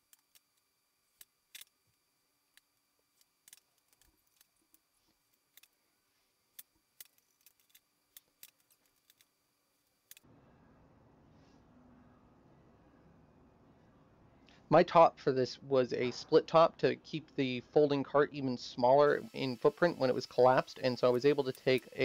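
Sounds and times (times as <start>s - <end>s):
steady low hiss: 11.4s - 22.0s.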